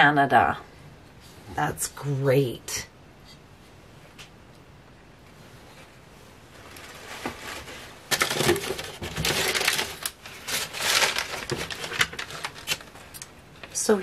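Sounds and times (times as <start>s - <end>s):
packing material rustling and crackling: 6.4s - 13.9s.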